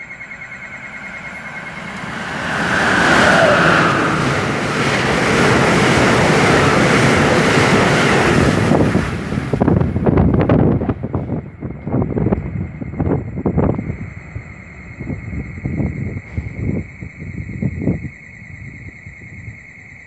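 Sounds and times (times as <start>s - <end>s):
train rushing past: 0.0s - 18.0s.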